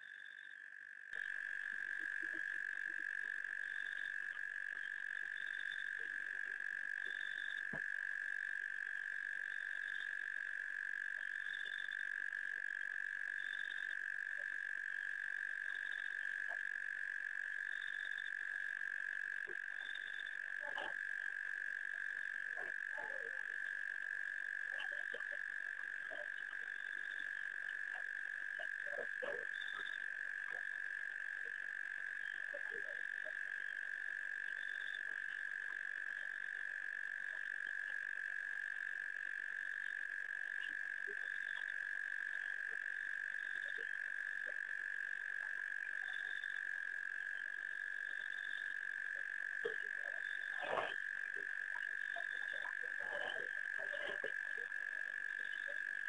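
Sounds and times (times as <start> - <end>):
frogs trilling: 0.0 - 56.0
high short frog call: 15.2 - 56.0.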